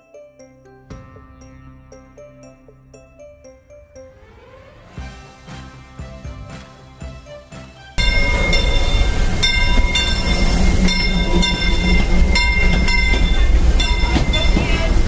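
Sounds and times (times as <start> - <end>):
metallic ringing: 8.0 - 15.0
steam train rumbling: 8.0 - 15.0.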